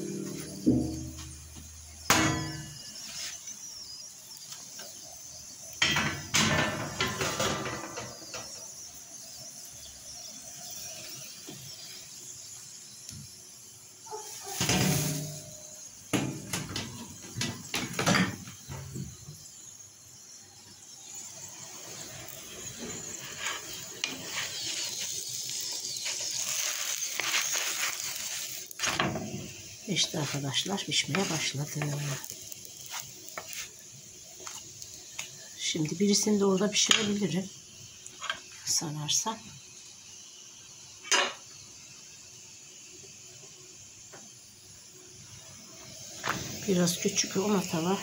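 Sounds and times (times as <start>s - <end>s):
wooden spatula scraping a pan: 22.9s - 29.3s, 30.0s - 33.8s.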